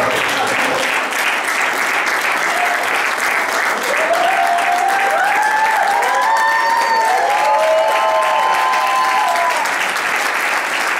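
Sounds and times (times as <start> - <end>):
audience applauding: 0.0 - 10.9
people cheering and whooping: 2.4 - 3.0, 3.7 - 9.9.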